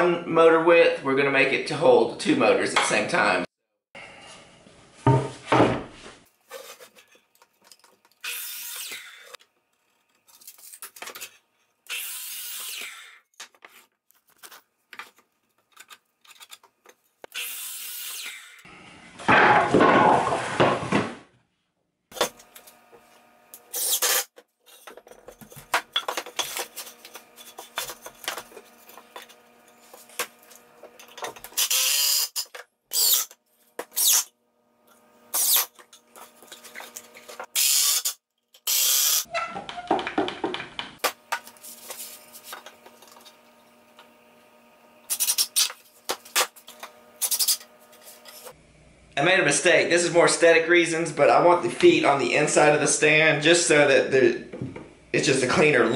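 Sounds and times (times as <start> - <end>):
wooden boards knocking and scraping: 5.0 - 6.0, 19.2 - 21.2, 39.6 - 41.4
cordless drill whirring: 31.5 - 34.3, 37.6 - 39.3.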